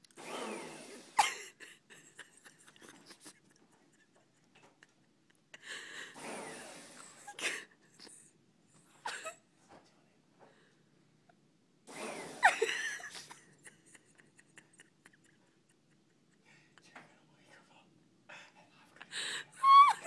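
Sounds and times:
handheld vacuum cleaner whine: 0.2 - 1.2, 11.9 - 12.6.

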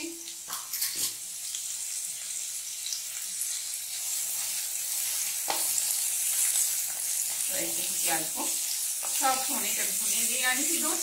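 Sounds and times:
onions sizzling in hot oil: 0.0 - 11.0.

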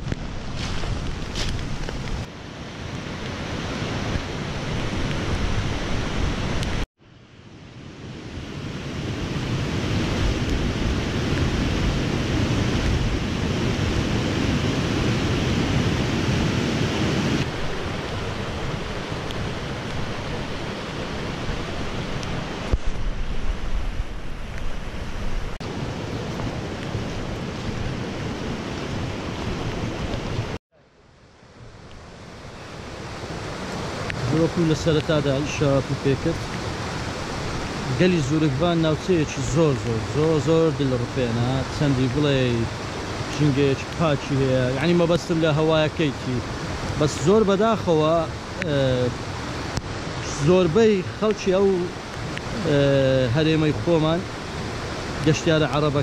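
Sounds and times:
wind on microphone: 0.0 - 6.8, 7.8 - 30.6
flooded stream rushing: 0.0 - 30.6, 31.3 - 56.0.

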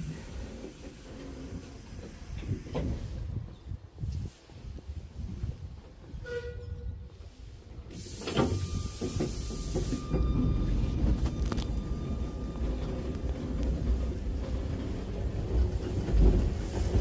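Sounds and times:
tram wheels rumbling on rails: 0.0 - 17.0
hiss with a knock: 7.9 - 10.3.

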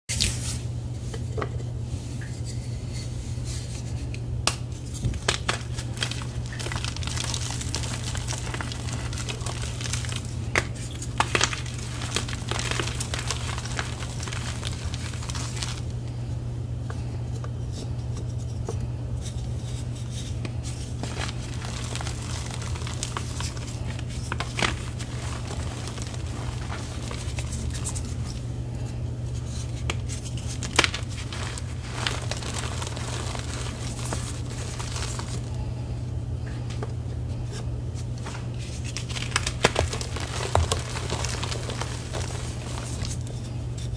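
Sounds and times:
steady low hum: 0.1 - 43.9
chalk blocks crunching: 4.9 - 15.9, 21.0 - 28.4, 29.4 - 35.6, 38.8 - 43.3
powder crumbling: 5.0 - 16.2, 20.7 - 28.5, 29.4 - 35.6, 38.2 - 43.5.

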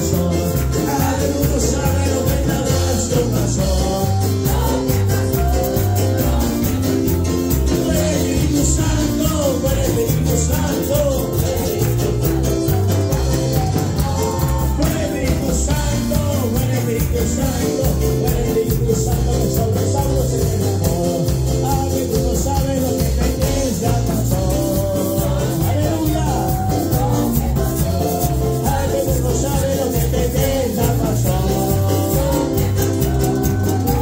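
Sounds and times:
drum kit beat: 0.0 - 34.0
electric bass: 0.0 - 34.0
keyboard: 0.0 - 34.0
man singing lead: 0.0 - 34.0
women singing backing vocals: 23.4 - 34.0.

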